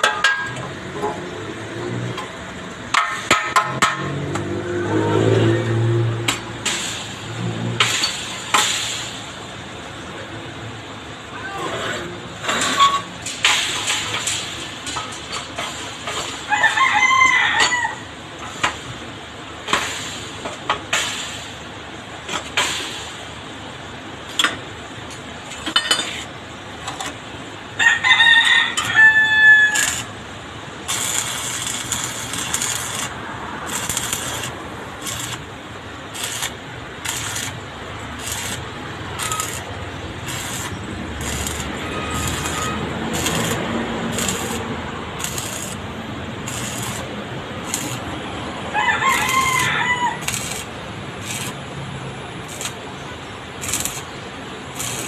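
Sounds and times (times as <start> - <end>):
rooster crowing: 16.5 - 18.1, 27.8 - 30.1, 48.6 - 50.7
welding arc crackling: 28.7 - 55.0.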